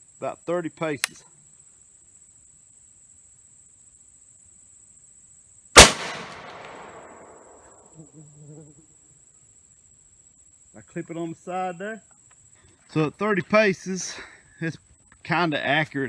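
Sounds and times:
high insect buzz: 1.2s - 12.8s
shotgun shot echoing: 5.8s - 7.8s.

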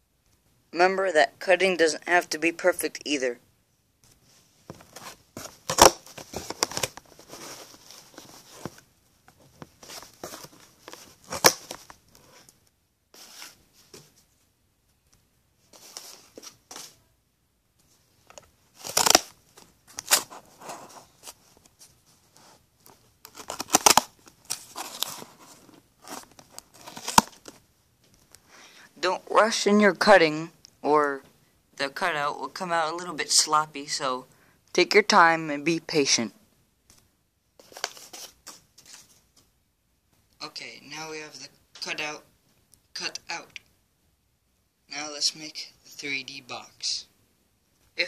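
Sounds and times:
scissors cutting cardboard: 23.3s - 24.1s.

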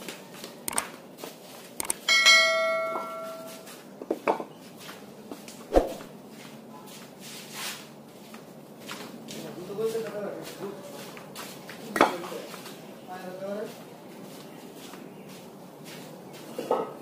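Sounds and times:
notification chime: 2.2s - 3.5s.

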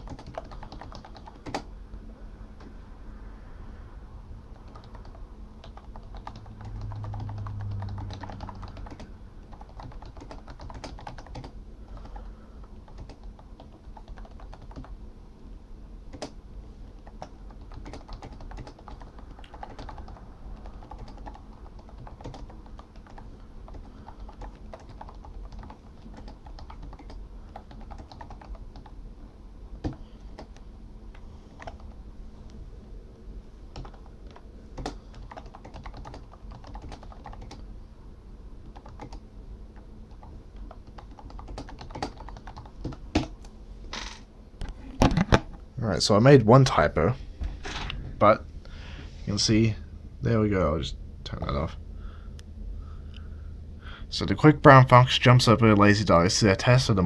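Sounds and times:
typing on keyboard keys: 0.0s - 1.7s, 4.5s - 15.0s, 16.1s - 16.4s, 17.0s - 29.0s, 29.8s - 30.6s, 31.6s - 32.0s, 33.7s - 37.6s, 38.6s - 39.2s, 39.8s - 43.3s.

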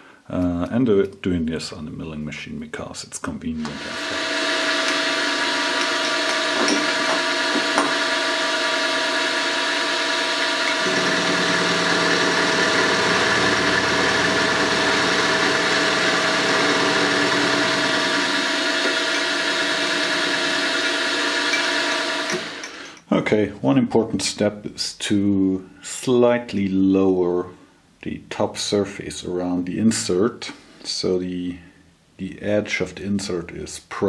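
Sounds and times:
milling machine whine: 3.6s - 23.0s.

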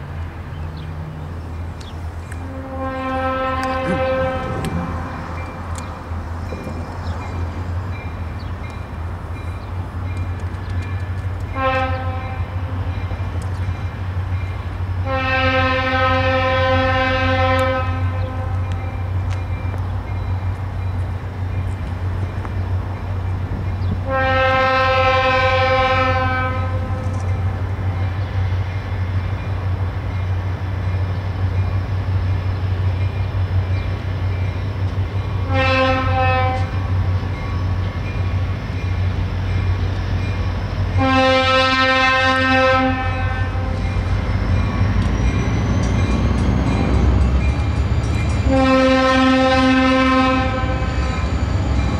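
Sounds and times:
low train rumble: 0.0s - 51.9s
train air horn blasts: 2.3s - 5.4s, 11.5s - 13.0s, 15.0s - 19.1s, 24.0s - 28.6s, 35.4s - 37.0s, 40.9s - 44.1s, 48.4s - 50.9s.

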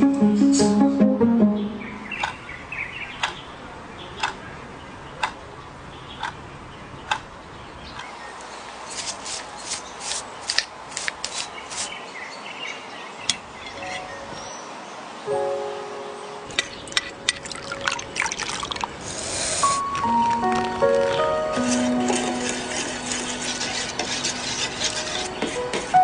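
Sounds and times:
pastry brush scratching on skin: 21.5s - 25.6s.

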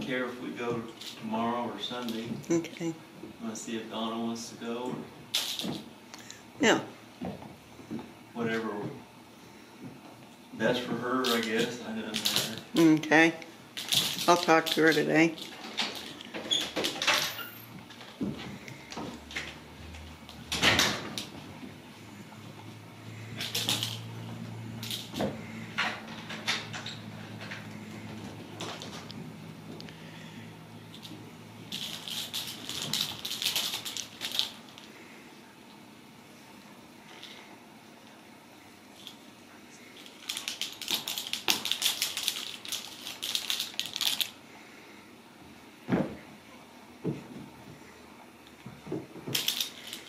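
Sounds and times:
steady low hum: 0.0s - 50.0s
kittens clicking and rattling toy: 5.3s - 5.9s, 11.0s - 13.1s, 13.7s - 21.4s, 23.1s - 29.2s, 30.9s - 35.0s, 39.9s - 44.4s, 49.2s - 50.0s.

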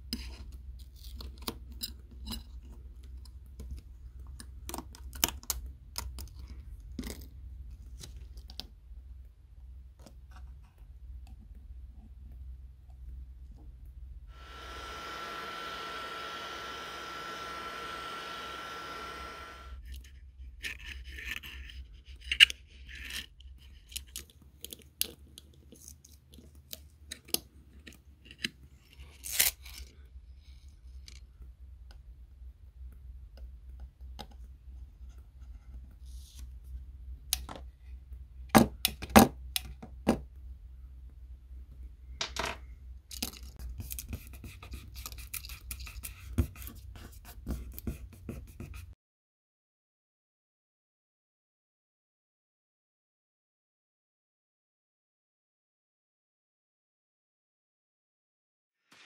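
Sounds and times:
heat gun blowing hiss: 14.3s - 19.8s.

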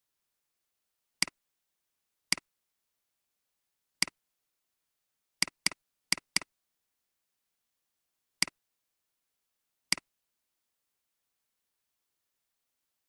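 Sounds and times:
mouse button clicks: 9.9s - 10.1s.

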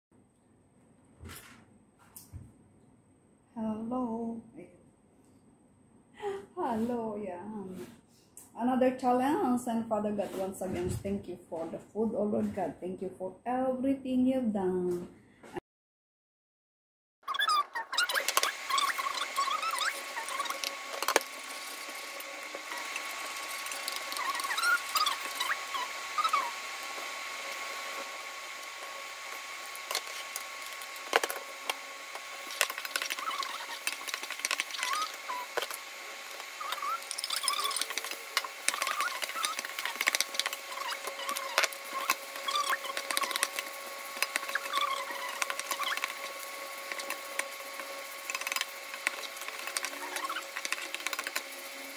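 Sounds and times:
wooden spatula scraping pan: 10.0s - 11.0s
short squeaks: 17.2s - 20.7s, 23.6s - 26.6s, 32.5s - 35.8s, 36.6s - 43.6s, 44.2s - 46.3s
food sizzling in a wok: 18.2s - 51.9s.

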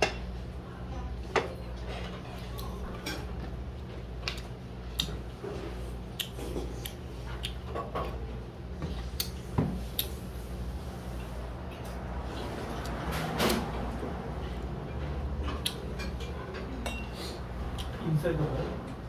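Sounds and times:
tableware clinking: 15.9s - 17.2s.

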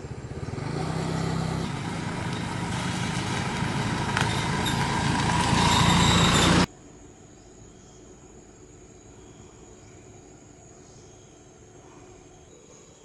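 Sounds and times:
vehicle passing on road: 0.0s - 6.7s.

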